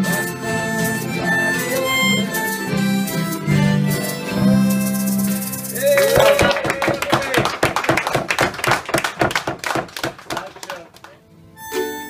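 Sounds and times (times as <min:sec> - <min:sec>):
harmonica and accordion chord: 0:00.0 - 0:05.9, 0:11.3 - 0:12.0
people clapping: 0:05.2 - 0:11.2
whooping cheer: 0:05.7 - 0:07.6.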